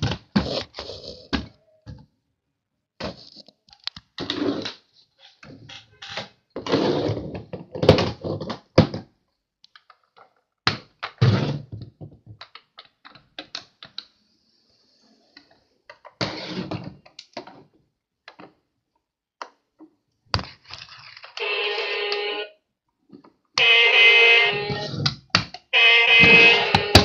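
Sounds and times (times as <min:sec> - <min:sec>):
plastic toy trucks knocking and scraping: 0:05.5 - 0:14.1.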